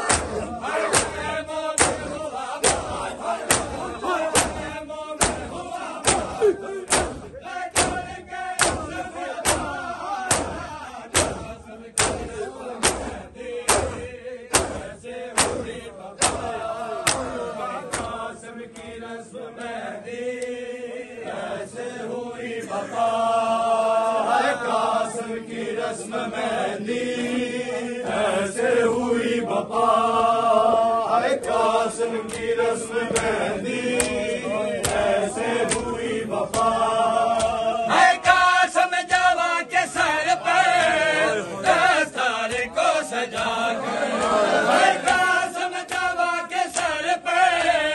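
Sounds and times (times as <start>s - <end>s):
men slapping chests: 0.0s - 19.0s, 31.3s - 47.9s
crowd chanting a lament: 0.0s - 47.9s.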